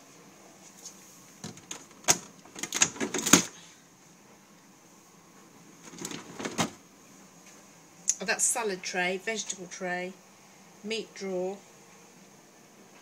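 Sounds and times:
fridge drawers knocking and rattling: 1.4s - 3.5s, 5.8s - 6.8s.

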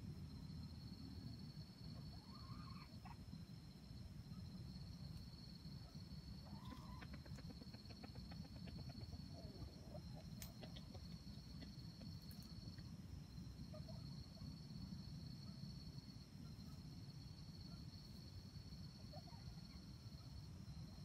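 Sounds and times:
chickens clucking softly: 1.8s - 3.3s, 5.8s - 12.9s.

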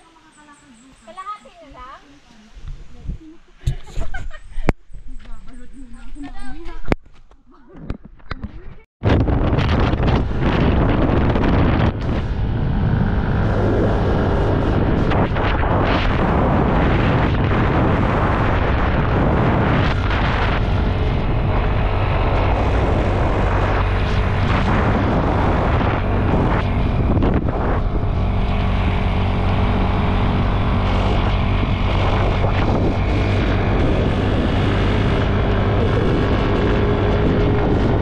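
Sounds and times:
wind on microphone: 0.0s - 7.1s, 7.8s - 38.0s
engine humming: 9.2s - 38.0s.

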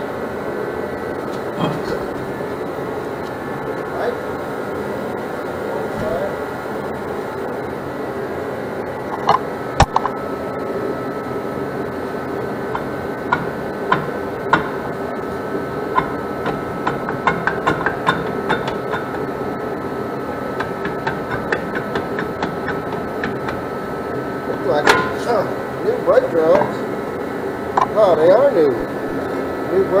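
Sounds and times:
steady hum: 0.0s - 30.0s
metallic clicks and knocks: 12.7s - 15.3s, 15.9s - 19.4s, 20.6s - 23.7s, 24.8s - 25.3s.

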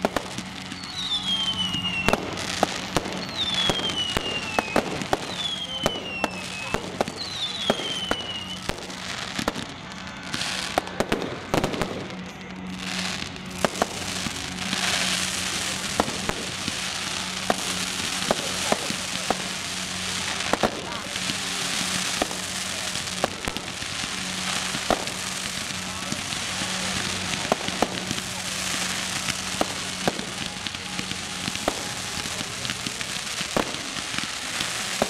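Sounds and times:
falling firework whistle: 0.0s - 12.1s
fireworks bangs and pops: 0.0s - 35.0s
hissing crackle of fountains: 0.0s - 35.0s.

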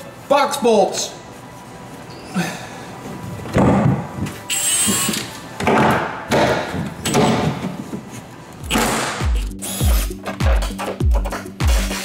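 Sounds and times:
impact driver bursts: 8.7s - 10.2s.

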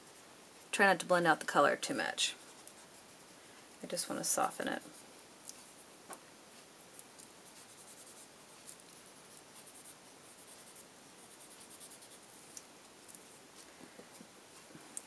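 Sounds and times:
coloured pencil scratching paper: 2.0s - 3.3s, 7.4s - 12.4s.

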